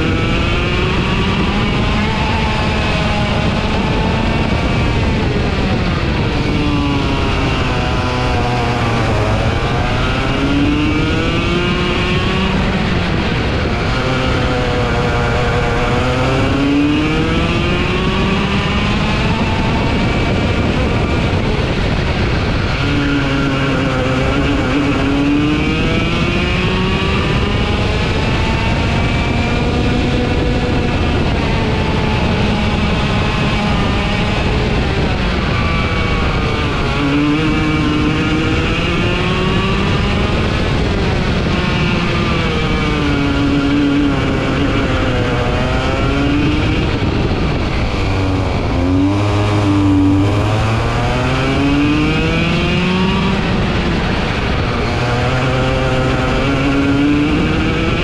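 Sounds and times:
kart engine accelerating: 0.0s - 58.0s
steady rushing noise: 0.0s - 58.0s.

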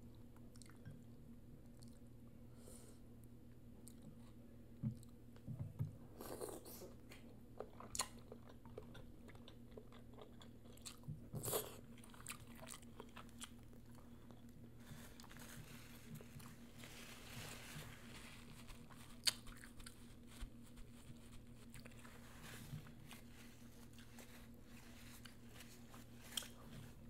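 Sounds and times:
chewing and biting: 7.6s - 14.6s, 18.8s - 20.0s.

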